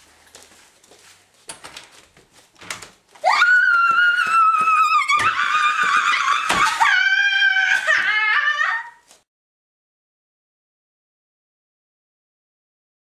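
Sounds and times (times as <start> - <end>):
woman screaming: 3.2 - 9.1.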